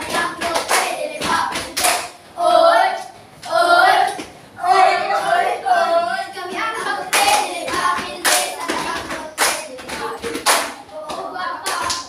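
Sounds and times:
hand claps: 0.0 - 2.2, 7.1 - 12.0
children singing together: 0.0 - 12.0.

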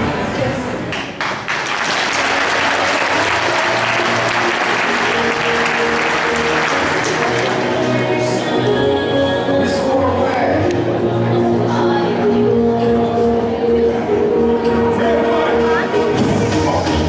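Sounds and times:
music: 0.0 - 17.0
audience applause: 1.2 - 8.3.

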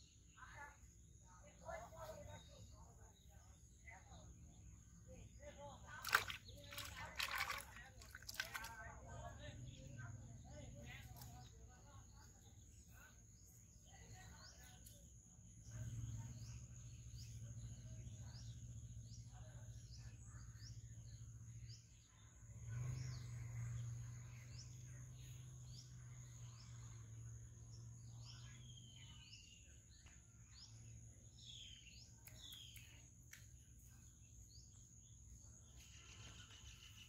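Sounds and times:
birds chirping: 0.0 - 37.0.

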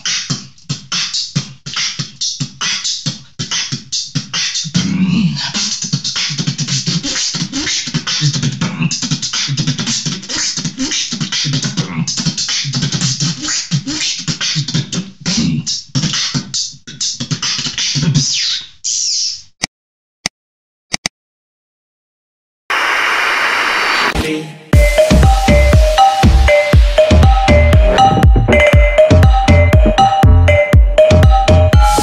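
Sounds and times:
person beatboxing: 0.0 - 19.2, 24.8 - 32.0
low bass tone: 24.8 - 32.0.

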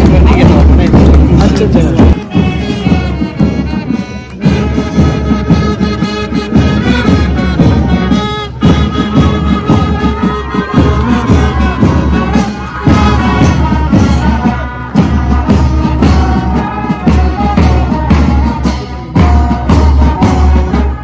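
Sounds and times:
bass drums: 0.0 - 21.0
brass marching band playing: 0.0 - 21.0.

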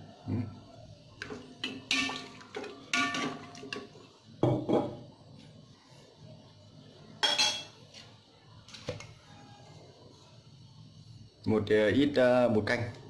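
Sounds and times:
ladle clinking against pot: 1.2 - 3.9, 7.2 - 7.8
ladle stirring in metal pot: 1.2 - 4.1.

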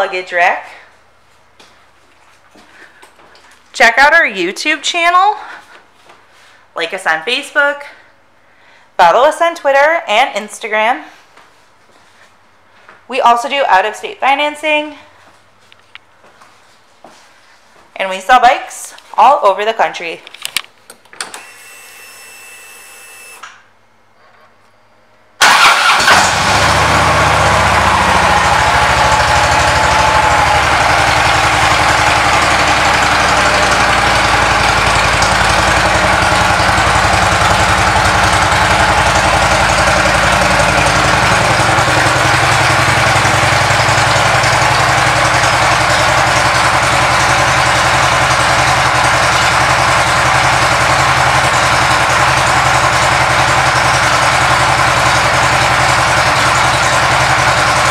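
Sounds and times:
motorcycle engine starting and idling: 25.4 - 57.9.

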